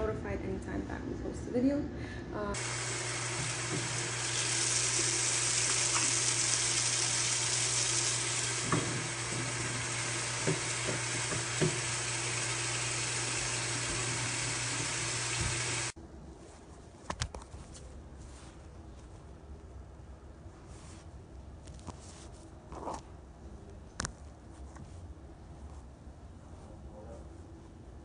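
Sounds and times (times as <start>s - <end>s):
tap running into sink: 2.6s - 15.9s.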